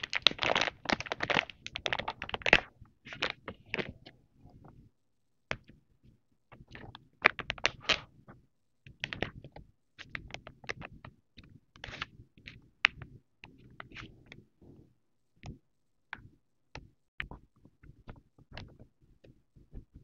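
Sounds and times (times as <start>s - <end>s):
plastic packet crinkling: 0.0s - 3.9s.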